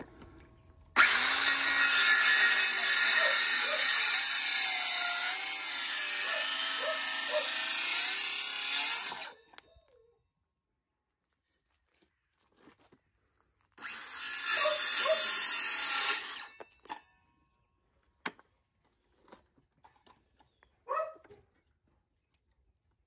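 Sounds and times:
circular saw cutting wood: 0.9 - 9.4, 13.8 - 17.0.

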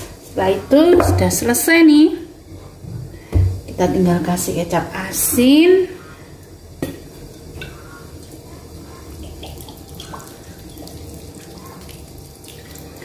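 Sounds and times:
sauce trickling and dripping: 6.3 - 13.0.

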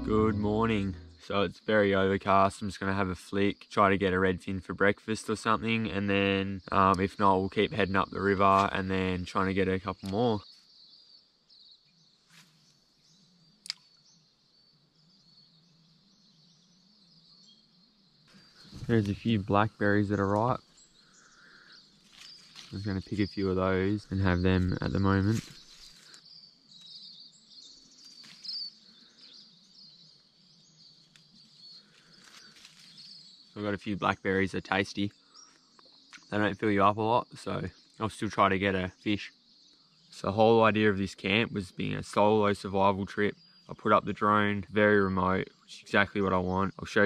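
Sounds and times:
insects and birds chorus: 0.0 - 47.0
rustling leaves and stems: 20.2 - 26.9, 28.0 - 28.7, 31.0 - 33.5.

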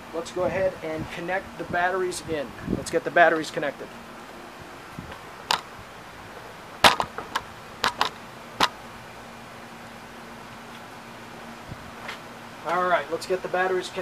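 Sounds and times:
clicks and knocks of handling: 6.8 - 8.7.

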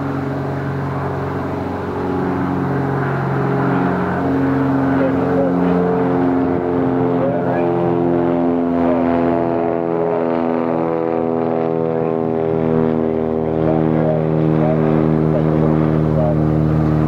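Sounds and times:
large engine droning: 0.0 - 17.0.

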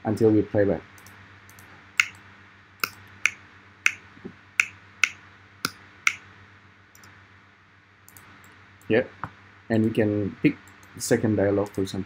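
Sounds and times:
sharp clicks: 1.0 - 2.2, 2.8 - 4.0, 8.1 - 8.9.

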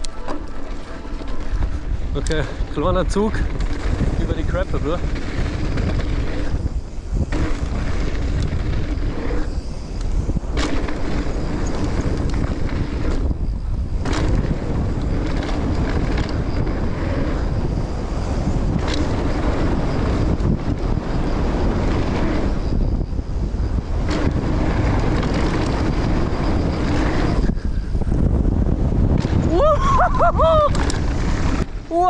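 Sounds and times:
bike tyre roar: 0.0 - 32.0
wind on microphone: 0.0 - 32.0.

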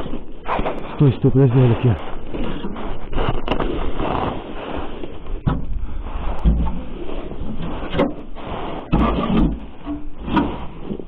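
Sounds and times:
sheet-metal knocks and scrapes: 8.8 - 10.8.

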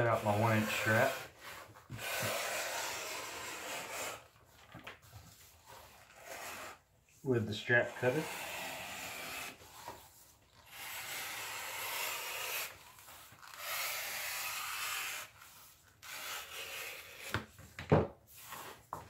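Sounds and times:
blade rasping through leather: 0.0 - 4.4, 5.3 - 6.8, 7.9 - 17.6.

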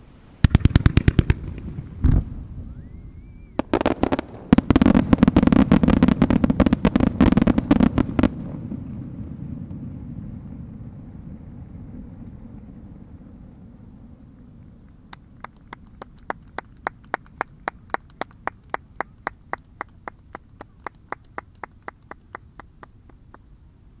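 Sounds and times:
person clapping hands: 15.1 - 23.4.

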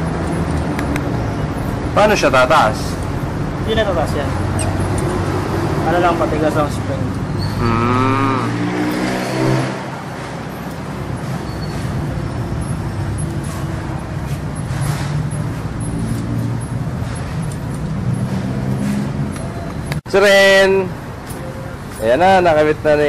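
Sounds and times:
vehicle engine humming: 2.6 - 20.0.

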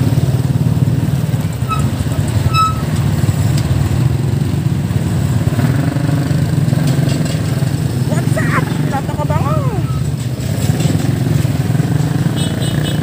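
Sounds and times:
motorcycle and truck engines: 0.0 - 13.0.

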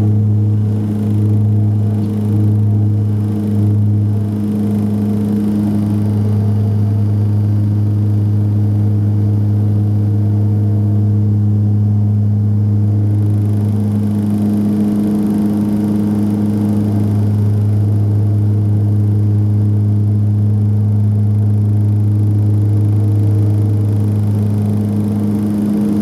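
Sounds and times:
turboprop engines droning in cabin: 0.0 - 26.0.

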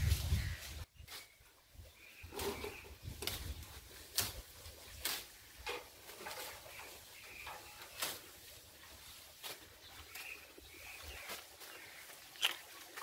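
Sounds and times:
wind rumble on microphone: 0.0 - 0.8
sharp rustles and snaps: 3.2 - 5.4, 12.3 - 13.0.

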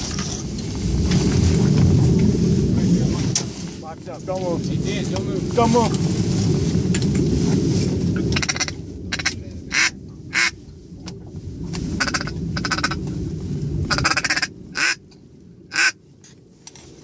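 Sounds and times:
low wind rumble on microphone: 0.0 - 17.0
duck call quacks: 8.4 - 10.6, 12.0 - 13.0, 13.9 - 15.0, 15.7 - 16.0.

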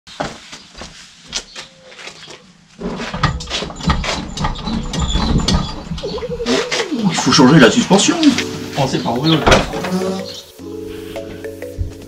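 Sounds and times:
light footsteps: 0.1 - 4.3, 6.2 - 9.1
car suspension knocks and thumps: 2.9 - 6.0.

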